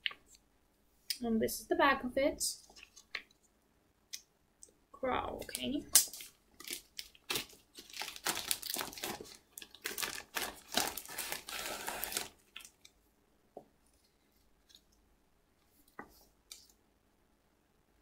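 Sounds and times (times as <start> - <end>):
paper rustling and crinkling: 6.0 - 12.9.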